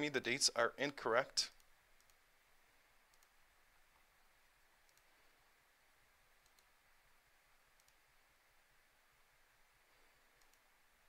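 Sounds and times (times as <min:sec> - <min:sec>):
faint computer mouse clicks: 0:01.6 - 0:02.2, 0:03.1 - 0:03.4, 0:04.8 - 0:05.1, 0:06.4 - 0:06.7, 0:07.8 - 0:08.0, 0:10.4 - 0:10.7.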